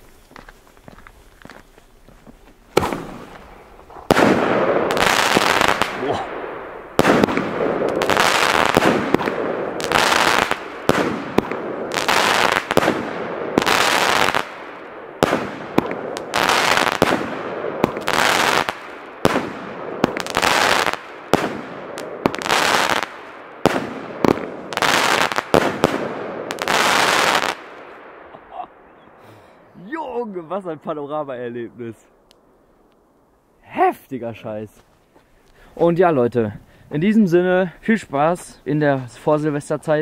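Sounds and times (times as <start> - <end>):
firework crackling: 2.7 - 27.9
firework shots: 2.7 - 28.4.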